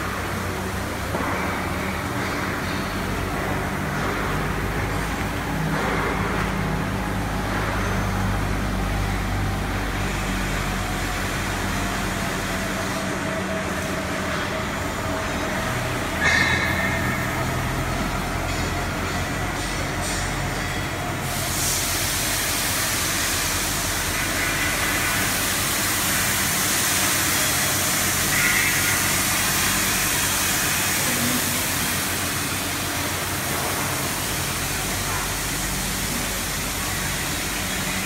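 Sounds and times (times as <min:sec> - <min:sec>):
workshop machinery rumble: 0:00.0 - 0:38.0
brief high-pitched machine sound: 0:30.8 - 0:32.3.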